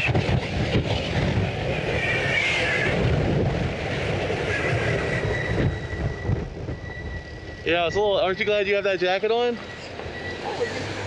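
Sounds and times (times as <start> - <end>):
wind buffeting microphone: 0.0 - 11.0
thin high whine: 4.0 - 11.0.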